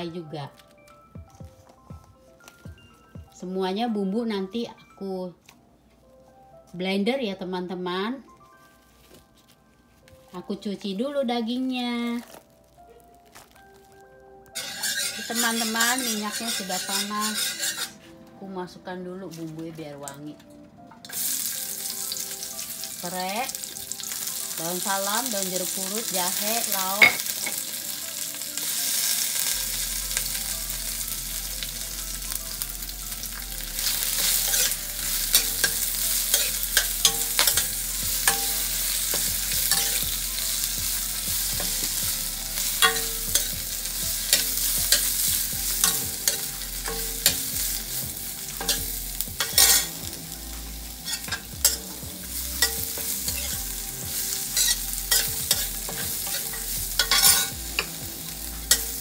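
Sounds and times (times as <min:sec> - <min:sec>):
leaves sizzling in hot oil: 0:11.6 - 0:18.1, 0:21.1 - 0:59.0
metal ladle scraping a wok: 0:14.6 - 0:18.1, 0:33.8 - 0:40.2, 0:49.4 - 0:50.0, 0:54.4 - 0:57.9.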